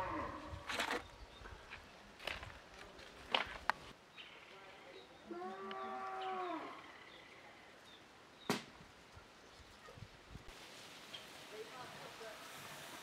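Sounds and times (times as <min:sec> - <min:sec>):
cow mooing: 0:05.3 - 0:06.8.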